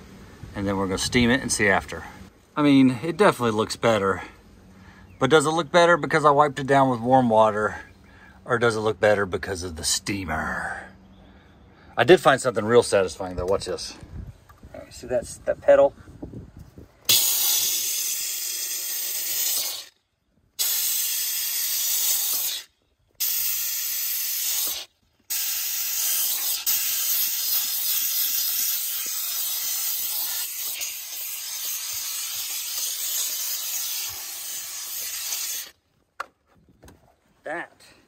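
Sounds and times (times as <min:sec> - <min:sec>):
steam cleaner hissing: 0:17.1 - 0:19.9, 0:20.6 - 0:35.7.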